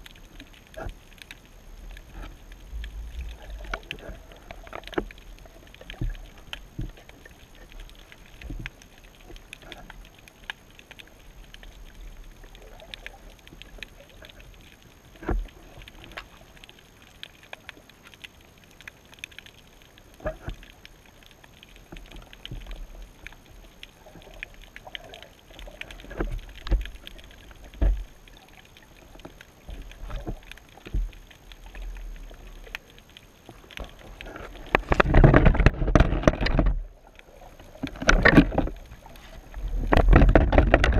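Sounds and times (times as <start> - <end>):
low underwater surge rumble: 0.0 - 16.6, 21.8 - 40.9
loud rough underwater rumbling: 33.8 - 40.9
knocks and clicks: 39.8 - 40.9.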